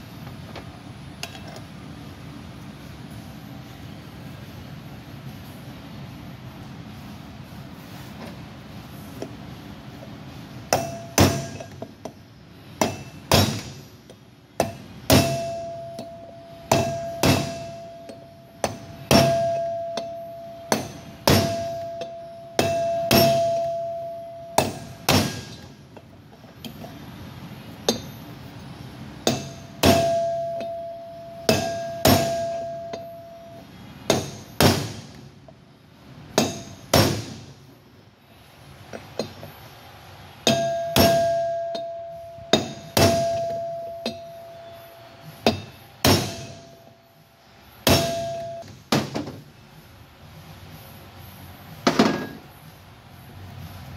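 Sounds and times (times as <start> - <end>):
metallic ringing: 10.7 - 12.2, 14.6 - 26.0, 27.8 - 34.6, 40.4 - 49.0
hammer striking steel wheel hub: 10.7 - 26.8, 27.8 - 28.2, 29.2 - 35.3, 36.3 - 37.6, 38.9 - 39.6, 40.4 - 47.1, 47.8 - 49.4, 51.8 - 52.6.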